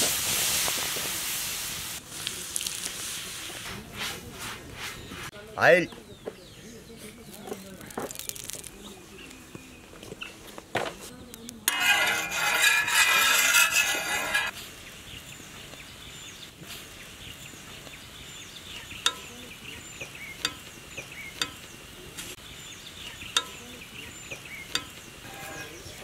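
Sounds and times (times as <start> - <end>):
oil sizzling on a griddle: 0.0 - 3.6.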